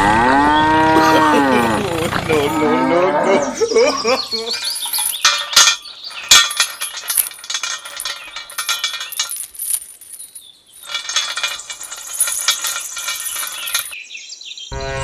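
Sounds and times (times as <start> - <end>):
small metal chain rattling: 3.9 - 14.0.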